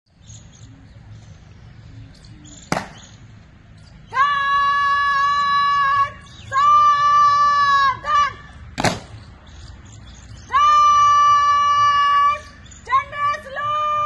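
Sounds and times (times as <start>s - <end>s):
woman shouting a command: 4.1s - 8.6s, 10.5s - 14.0s.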